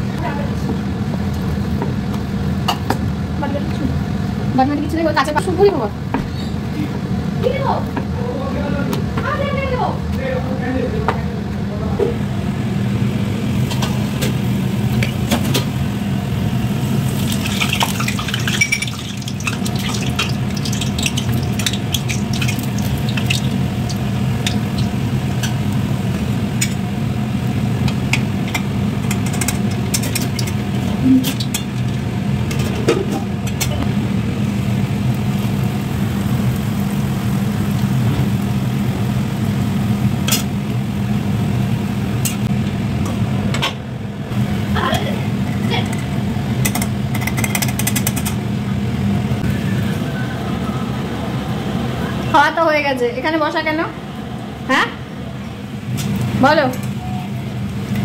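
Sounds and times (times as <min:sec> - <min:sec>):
constant low hum: 0:00.0 - 0:58.0
food sizzling in hot oil: 0:12.4 - 0:42.5.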